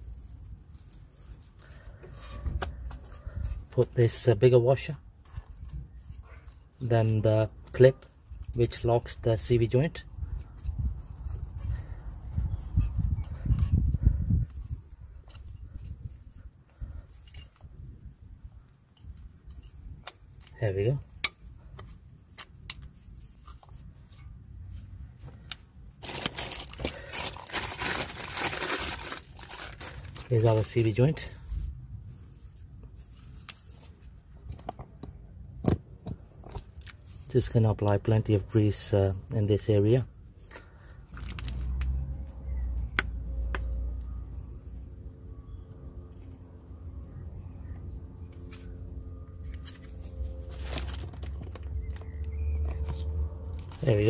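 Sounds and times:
clicks of parts being handled: 0:18.9 - 0:24.2
loud crinkling and rustling: 0:25.2 - 0:31.4, 0:40.4 - 0:41.9, 0:49.4 - 0:54.0
low steady rumble: 0:40.0 - 0:54.0.

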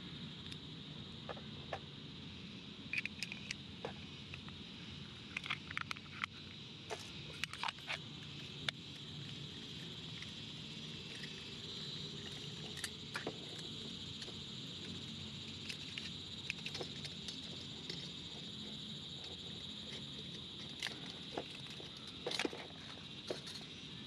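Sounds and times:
high-pitched background drone: 0:06.9 - 0:24.0.

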